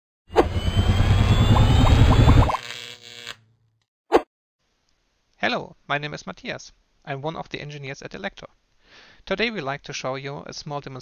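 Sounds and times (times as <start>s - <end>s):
short rising chirps: 0.3s - 2.6s.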